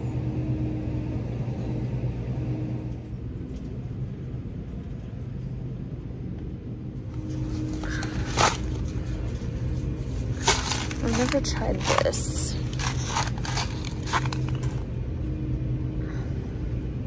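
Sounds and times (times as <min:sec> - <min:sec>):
constant hum: 0:00.0 - 0:17.0
shopping cart wheels rolling: 0:10.1 - 0:14.9.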